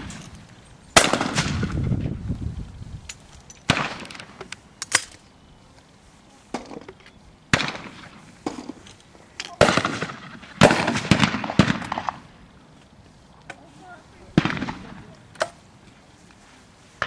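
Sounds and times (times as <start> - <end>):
shotgun shots: 1.0 - 1.7, 3.7 - 4.4, 7.5 - 8.6, 9.5 - 12.3, 14.3 - 15.1.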